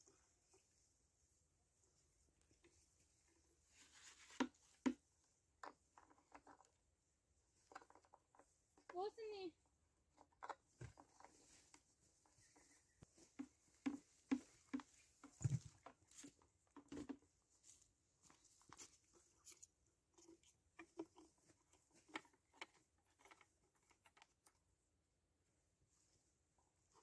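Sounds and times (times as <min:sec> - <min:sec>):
clicks and taps on plastic: 0:13.0 - 0:17.3.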